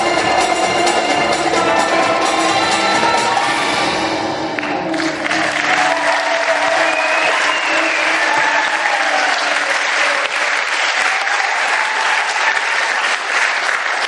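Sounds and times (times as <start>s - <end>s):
audience applauding: 4.5s - 14.0s.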